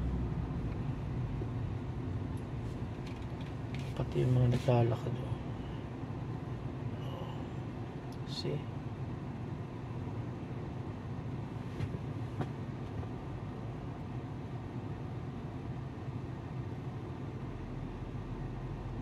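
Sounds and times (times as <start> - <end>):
traffic rumble: 0.0 - 19.0
car cabin hum: 9.0 - 19.0.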